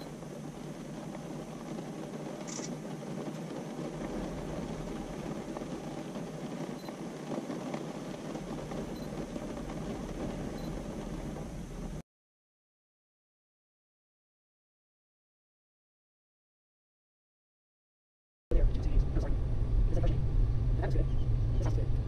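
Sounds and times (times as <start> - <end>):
low rushing noise: 0.0 - 12.0, 18.5 - 22.0.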